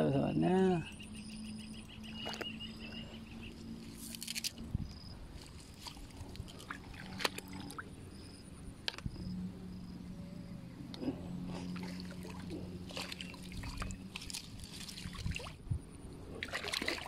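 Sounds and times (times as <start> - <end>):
steady low hum: 0.0 - 17.0
water sloshing and squishing: 5.4 - 7.9, 11.5 - 15.6, 16.3 - 17.0.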